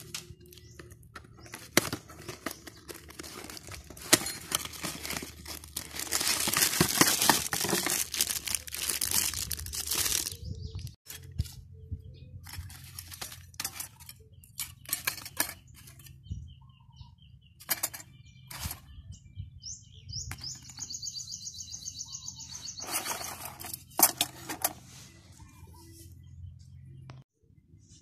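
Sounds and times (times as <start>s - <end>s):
plastic packaging rustling: 0.0s - 11.6s, 12.4s - 14.1s
bird singing: 0.0s - 28.0s
metal parts clinking: 2.2s - 10.3s, 12.4s - 16.1s, 17.6s - 18.8s, 22.8s - 24.8s.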